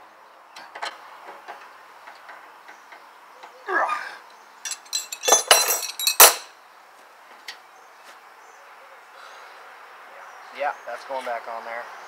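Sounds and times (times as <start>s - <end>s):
wrenches clinking against tools: 4.6s - 6.5s.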